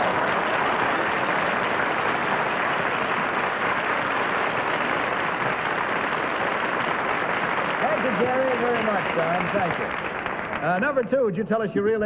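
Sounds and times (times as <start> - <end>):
studio audience applauding: 0.0 - 11.4.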